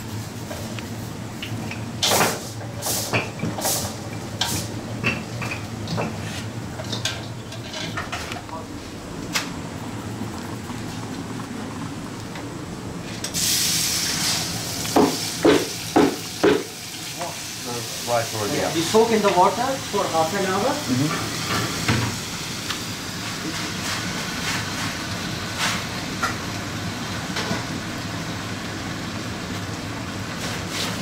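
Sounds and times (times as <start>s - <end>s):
steady low hum: 0.0s - 16.1s.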